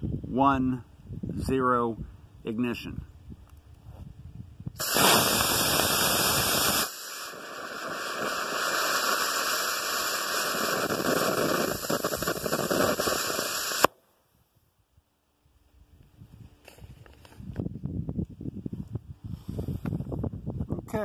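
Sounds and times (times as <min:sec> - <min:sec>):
rocket motor hissing: 0:04.8 - 0:13.9
ejection charge pop: 0:04.8 - 0:14.0.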